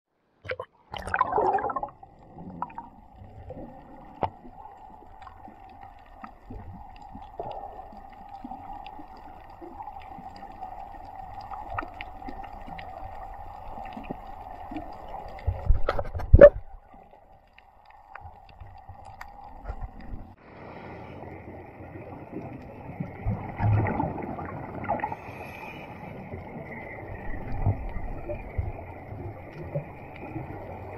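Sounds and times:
scuba regulator bubbling: 0:00.4 - 0:20.4
muffled underwater hum: 0:24.9 - 0:30.9.

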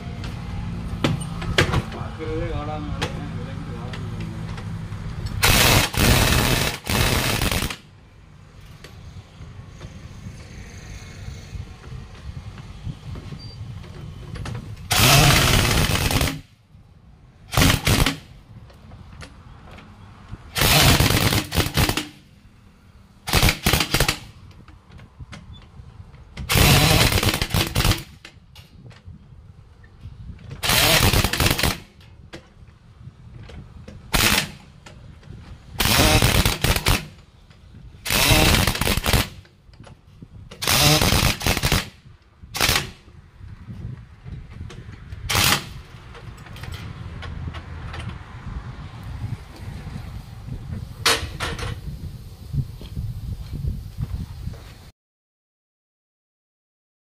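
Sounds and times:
pneumatic impact wrench hammering: 0:04.5 - 0:07.9, 0:14.0 - 0:16.6, 0:17.5 - 0:18.4, 0:20.5 - 0:22.3, 0:23.2 - 0:24.6, 0:26.2 - 0:28.8, 0:30.4 - 0:32.1, 0:33.4 - 0:43.2, 0:44.6 - 0:47.0.

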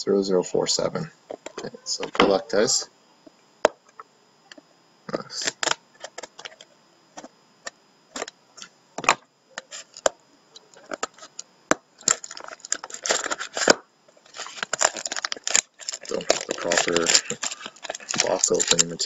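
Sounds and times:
plastic shrink wrap crinkling: 0:12.0 - 0:19.0.

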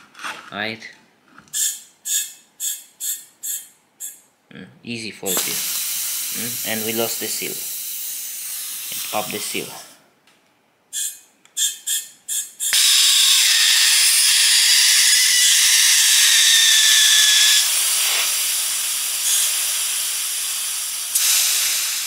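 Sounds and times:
compressed air hissing: 0:01.5 - 0:04.2, 0:05.3 - 0:10.0, 0:10.9 - 0:22.0
short air blasts: 0:01.5 - 0:04.2, 0:05.3 - 0:10.0, 0:16.0 - 0:22.0
air whistle: 0:01.6 - 0:04.2, 0:10.9 - 0:13.8.

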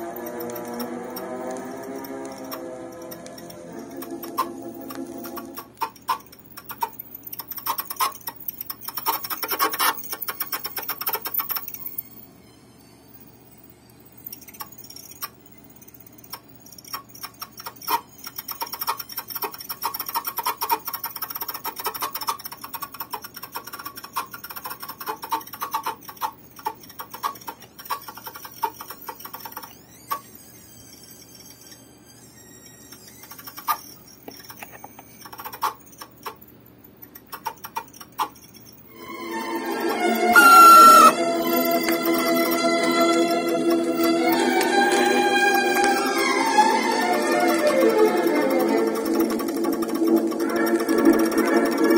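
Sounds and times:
music from record player: 0:00.0 - 0:05.6, 0:39.0 - 0:51.9
vinyl clicks and ticks: 0:00.0 - 0:12.0, 0:16.0 - 0:30.2, 0:33.0 - 0:38.8, 0:47.2 - 0:51.9.

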